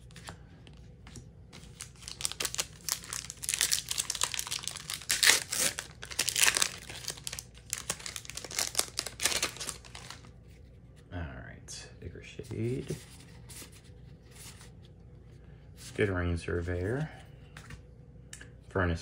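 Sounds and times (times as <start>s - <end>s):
foil wrapper crinkling and tearing: 1.6s - 10.3s.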